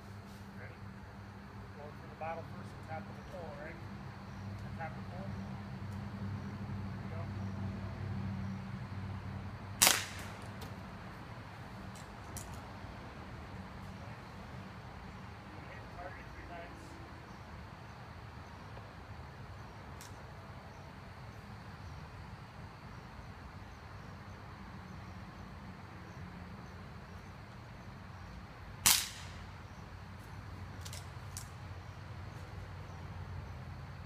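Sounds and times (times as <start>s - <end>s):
air rifle shot: 9.8s - 10.5s, 28.8s - 29.5s.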